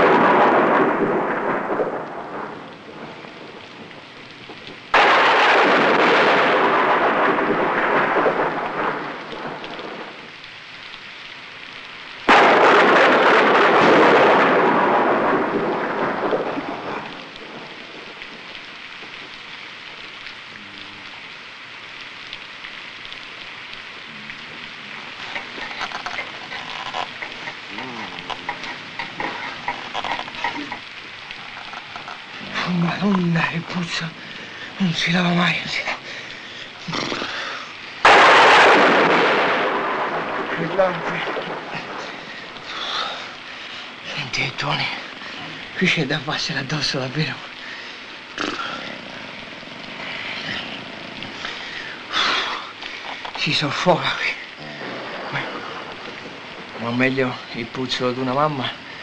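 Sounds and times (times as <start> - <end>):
sudden thunderclaps: 0.0 - 10.3, 12.2 - 19.3, 32.6 - 43.1, 53.5 - 58.9
steady rain: 0.0 - 59.0
thunder rumbling: 0.0 - 59.0.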